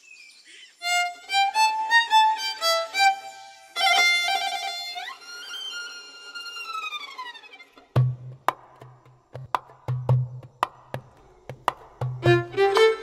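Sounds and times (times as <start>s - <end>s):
solo violin: 0.8s - 8.0s, 12.2s - 13.0s.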